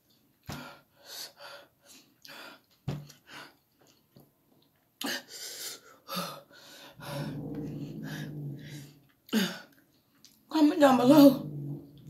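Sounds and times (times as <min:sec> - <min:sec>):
person breathing hard: 0:05.0 - 0:09.7
low voiced hum: 0:07.0 - 0:09.0, 0:10.8 - 0:12.0.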